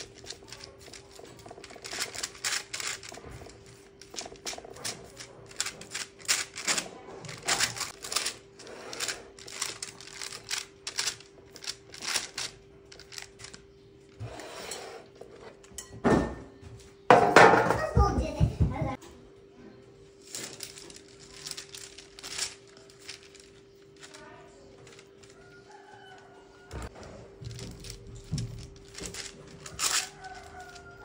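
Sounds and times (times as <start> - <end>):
baking paper crackling: 0.0 - 14.4, 20.1 - 31.0.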